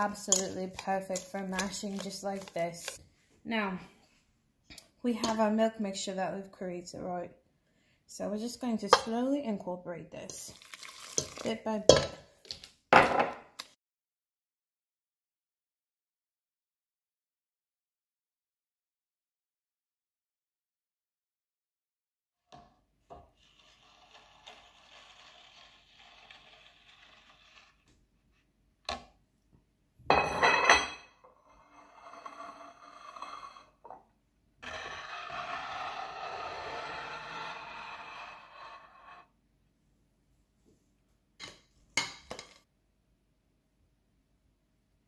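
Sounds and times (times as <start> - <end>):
whisk scraping metal bowl: 0.0 - 3.0.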